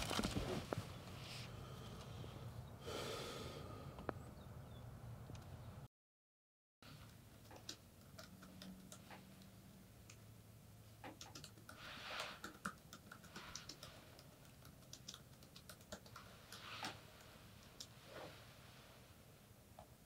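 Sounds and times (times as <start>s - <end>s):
faint steady hum: 0.0s - 5.9s, 6.8s - 20.0s
typing on a computer keyboard: 11.1s - 11.8s, 12.4s - 17.0s.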